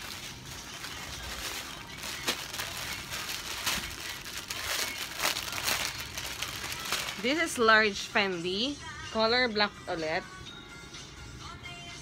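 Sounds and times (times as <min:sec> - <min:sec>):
soft rustling of wrapping: 0:00.0 - 0:07.6.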